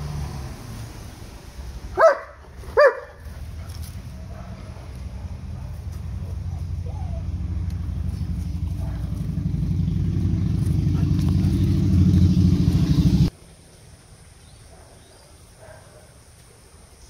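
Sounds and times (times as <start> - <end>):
engine running: 0.0 - 13.3.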